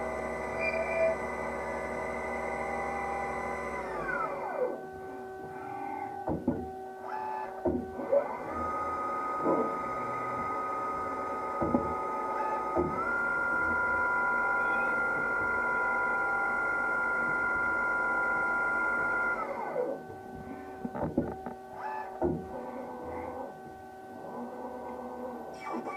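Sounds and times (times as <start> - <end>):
lathe spindle whine: 0.0 - 25.9
tool turret clunks: 11.6 - 13.2.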